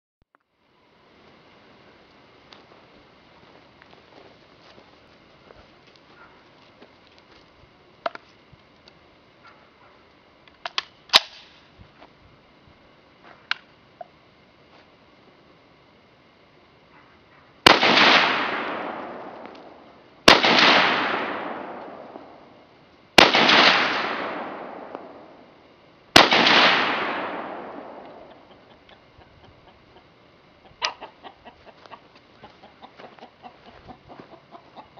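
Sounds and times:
rifle shots with echo: 17.6 - 22.6, 23.2 - 25.5, 26.1 - 28.5.

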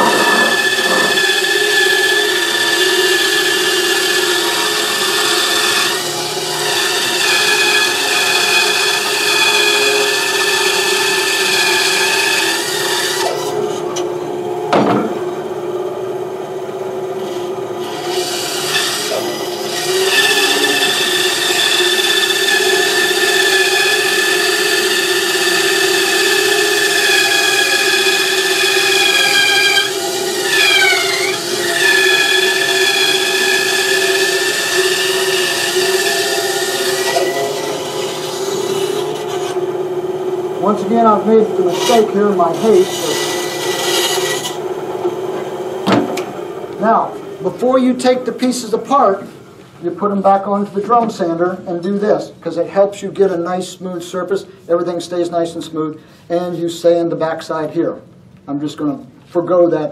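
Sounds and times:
bandsaw blade cutting wood: 0.0 - 14.0, 17.2 - 39.7, 40.6 - 44.6
bandsaw hum: 0.0 - 49.1.

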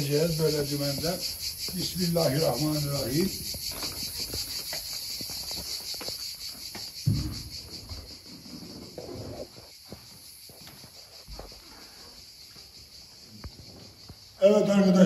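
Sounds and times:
insects chirping: 0.0 - 15.0
low thump: 7.0 - 7.9.

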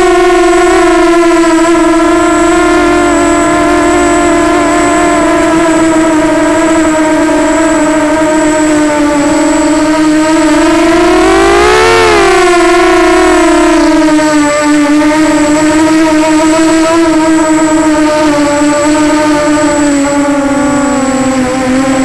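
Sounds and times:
quadcopter motors whining: 0.0 - 22.0
high-pitched tone: 9.2 - 14.4.

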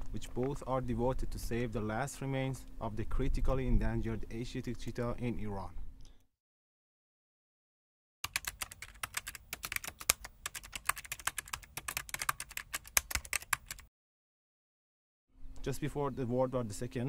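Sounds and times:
keyboard typing clicks: 8.2 - 13.9.

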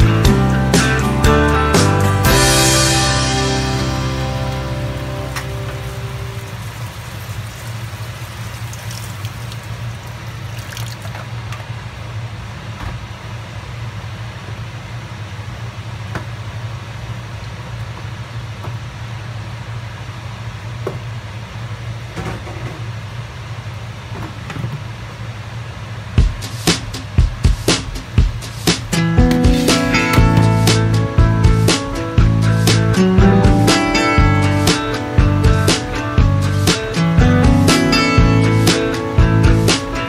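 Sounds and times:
seafood sizzling in a wok: 4.6 - 9.3.

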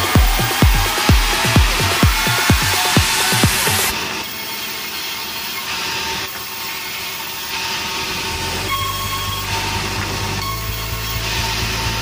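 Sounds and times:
deep machine hum: 0.0 - 3.9
sawmill saw whine and clatter: 0.0 - 12.0.

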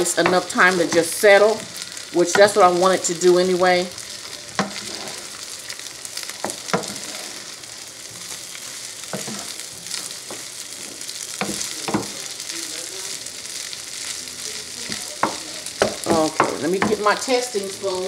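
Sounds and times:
rice sizzling in a pan: 0.0 - 18.0
wooden spoon scraping a pan: 4.0 - 12.2.

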